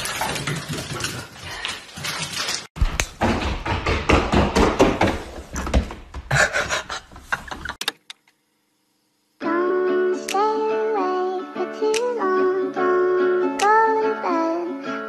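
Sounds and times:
pet paws galloping on wooden floor: 0.0s - 7.7s.

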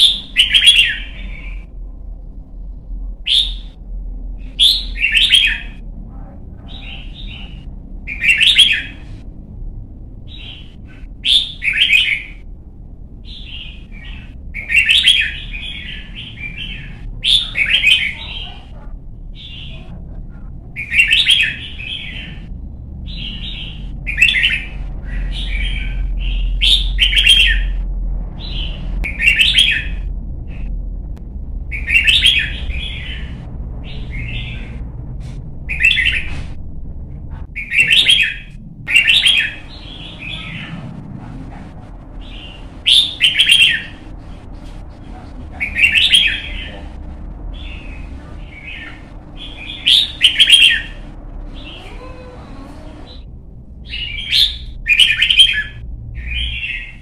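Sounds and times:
bulbul singing: 0.0s - 1.8s, 3.3s - 3.8s, 4.4s - 5.8s, 6.6s - 9.2s, 10.2s - 12.5s, 13.2s - 20.0s, 20.7s - 27.8s, 28.4s - 30.1s, 31.7s - 34.9s, 37.5s - 40.8s, 42.2s - 44.5s, 45.6s - 52.2s, 53.1s - 57.0s.

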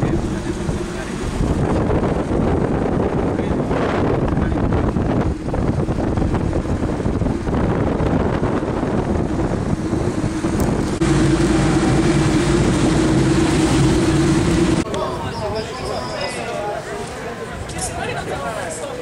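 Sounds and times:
car engine drone: 0.0s - 14.9s
car road noise: 0.0s - 14.9s
wind buffeting microphone: 0.0s - 14.9s.

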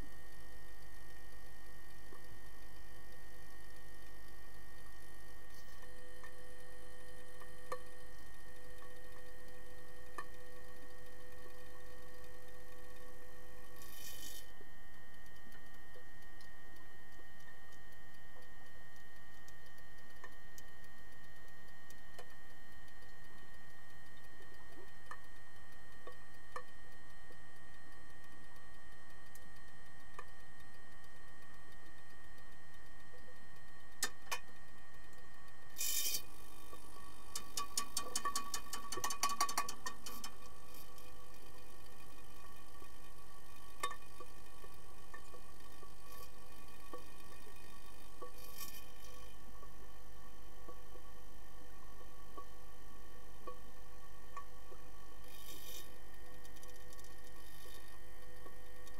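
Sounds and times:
faint high whining tones: 0.0s - 37.4s
sharp underwater clicks: 37.3s - 42.8s
underwater hum: 38.0s - 58.9s.

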